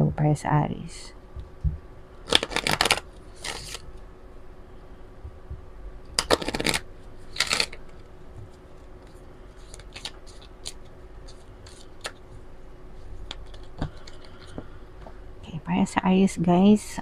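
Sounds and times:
cards tapping and sliding: 0:02.3 - 0:03.8, 0:06.2 - 0:12.2, 0:13.2 - 0:14.7
cards riffle shuffled: 0:02.3 - 0:03.9, 0:06.2 - 0:12.3, 0:13.2 - 0:14.7.

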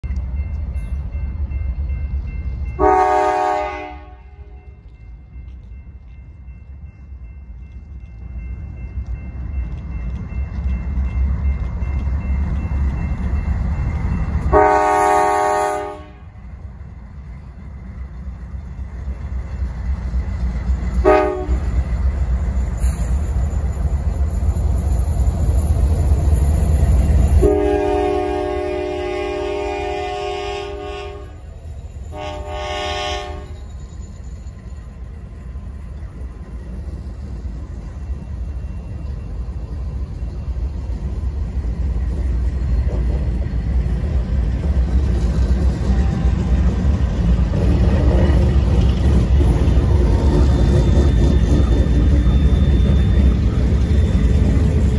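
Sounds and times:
diesel locomotive rumbling: 0:00.0 - 0:54.9
locomotive air horn blast: 0:02.8 - 0:04.6, 0:14.5 - 0:16.3, 0:21.0 - 0:21.6, 0:27.4 - 0:31.4, 0:32.1 - 0:33.6.

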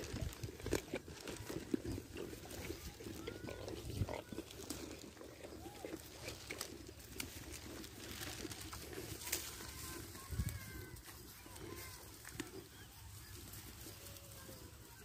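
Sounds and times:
goats crunching and chewing: 0:00.0 - 0:15.0.

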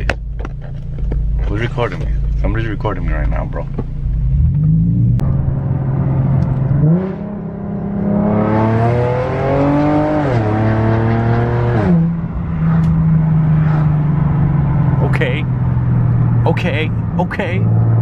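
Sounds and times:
car engine accelerating: 0:00.0 - 0:18.0.

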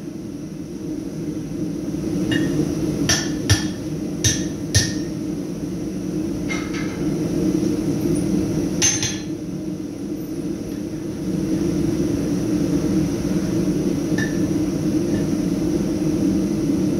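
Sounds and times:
steady low hum: 0:00.0 - 0:16.9
hammer ringing on anvil: 0:02.3 - 0:05.1.

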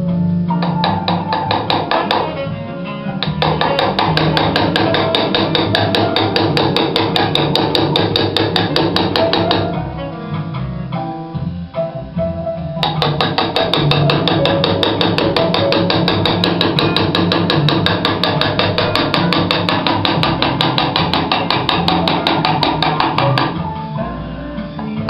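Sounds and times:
hammer tapping metal chisel: 0:00.6 - 0:02.4, 0:03.2 - 0:09.7, 0:12.8 - 0:23.6.

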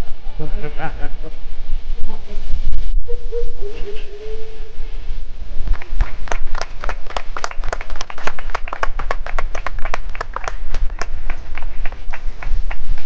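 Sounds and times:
people clapping: 0:05.6 - 0:13.0.

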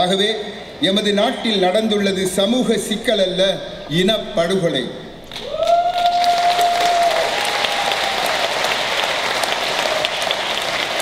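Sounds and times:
audience applauding: 0:05.3 - 0:11.0.

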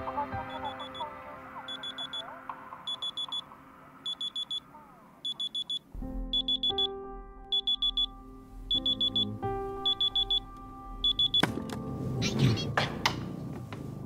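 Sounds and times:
soft music: 0:00.0 - 0:14.0
alarm clock beeping: 0:00.4 - 0:01.1, 0:01.7 - 0:11.5
held music chords: 0:05.6 - 0:14.0.

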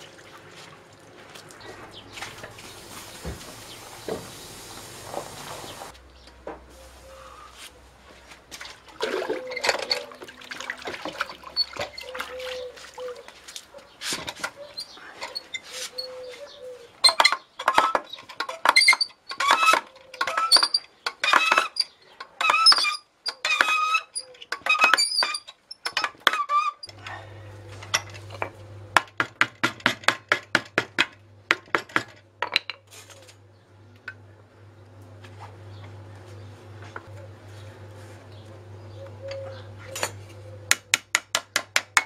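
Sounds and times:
metal lever squeaking and clinking: 0:09.4 - 0:10.2, 0:14.3 - 0:16.2, 0:17.0 - 0:26.9
low steady hum: 0:26.9 - 0:29.2, 0:31.0 - 0:41.2.

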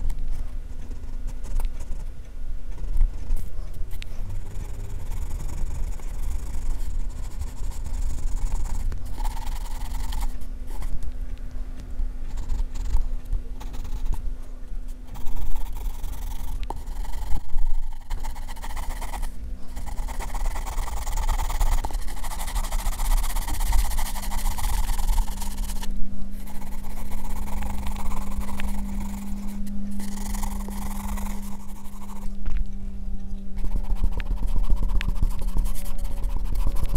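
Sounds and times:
steady low hum: 0:00.0 - 0:36.9
pencil scratching on paper: 0:15.1 - 0:32.3, 0:33.6 - 0:36.9.

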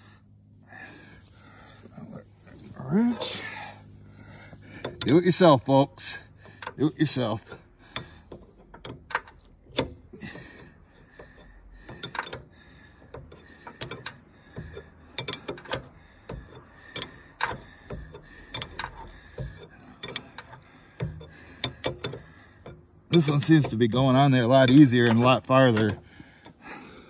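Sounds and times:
wrench clicking on metal fitting: 0:11.2 - 0:26.6.

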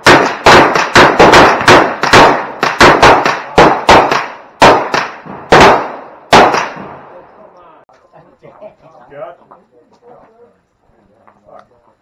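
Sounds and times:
pistol shots echoing: 0:00.0 - 0:07.1.

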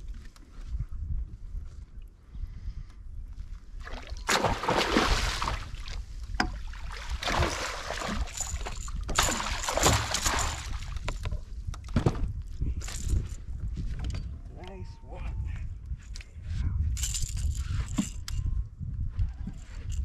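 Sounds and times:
fish thrashing and water splashing: 0:03.9 - 0:11.3.

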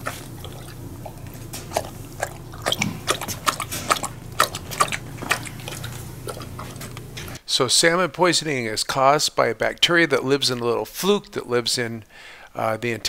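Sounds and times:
dog lapping food from metal bowl: 0:00.0 - 0:07.4.

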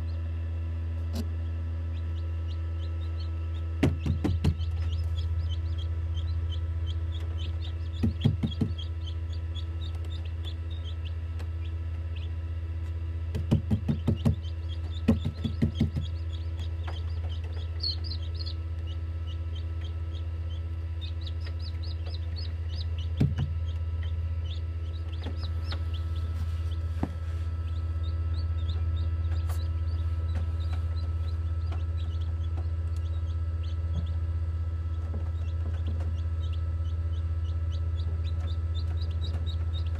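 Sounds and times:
incubator humming: 0:00.0 - 0:39.9
chicks peeping rapidly: 0:01.1 - 0:39.9
short bursts of knocking: 0:08.0 - 0:08.9, 0:13.3 - 0:16.2.

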